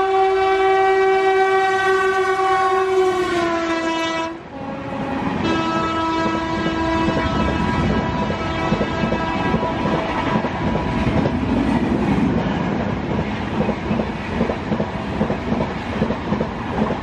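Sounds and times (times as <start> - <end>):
train horn: 0.0 - 11.4
train coaches rumbling past: 0.0 - 17.0.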